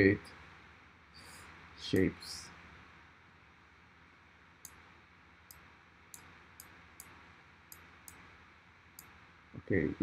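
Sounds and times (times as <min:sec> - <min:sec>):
low background hiss: 0:00.0 - 0:10.0
computer mouse clicks: 0:04.6 - 0:04.8, 0:05.5 - 0:08.2.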